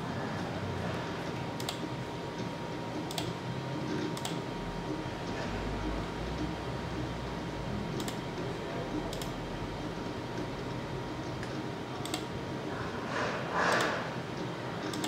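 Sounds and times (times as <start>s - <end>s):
steady room hum: 0.0s - 15.0s
computer mouse clicks: 1.6s - 1.9s, 3.0s - 3.4s, 4.0s - 4.4s, 7.9s - 8.2s, 9.0s - 9.4s, 11.4s - 12.3s, 13.6s - 14.0s.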